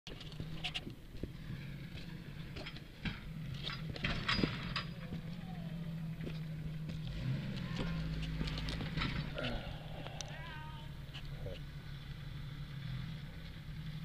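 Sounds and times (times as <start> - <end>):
engine running at low revs: 0.1 - 14.0
rocks knocking under tyres: 6.2 - 10.3.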